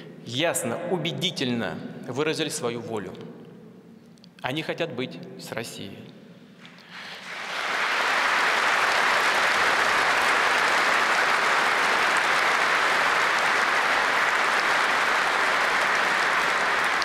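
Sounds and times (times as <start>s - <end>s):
audience applause: 7.0s - 17.0s.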